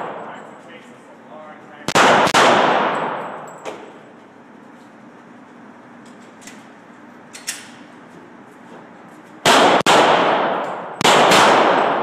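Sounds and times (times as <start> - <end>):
handgun shots with echo: 1.9 - 3.9, 9.4 - 12.0.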